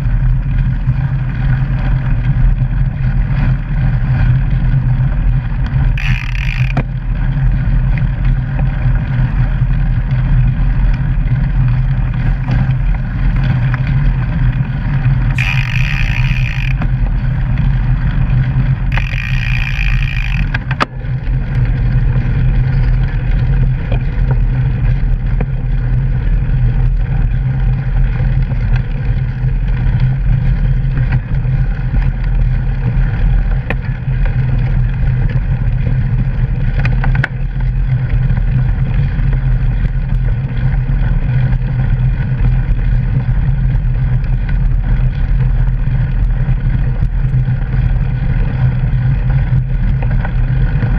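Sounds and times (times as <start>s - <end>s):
bike tyre rumbling on gravel: 0.0s - 50.9s.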